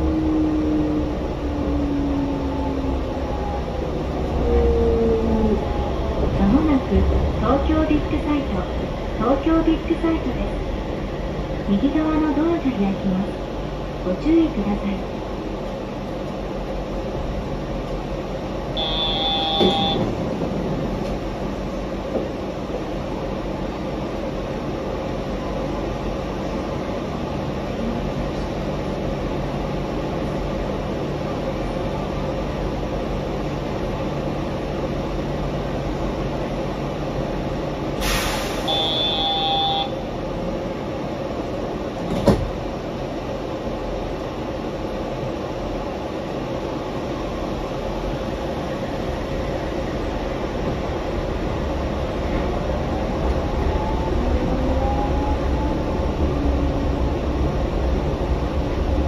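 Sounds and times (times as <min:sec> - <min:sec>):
train rolling noise: 0:00.0 - 0:59.0
high beep: 0:18.8 - 0:20.0, 0:38.7 - 0:39.9
short hiss: 0:38.0 - 0:38.7.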